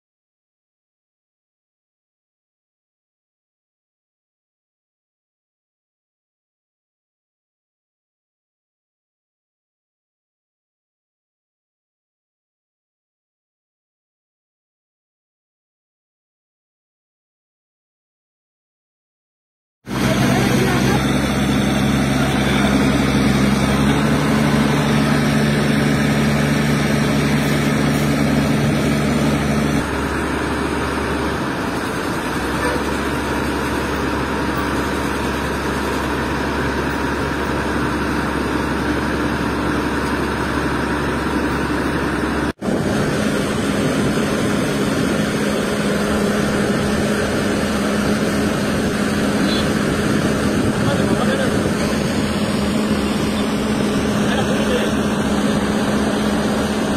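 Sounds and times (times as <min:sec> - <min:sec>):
heavy diesel crane engine running: 0:19.9 - 0:56.9.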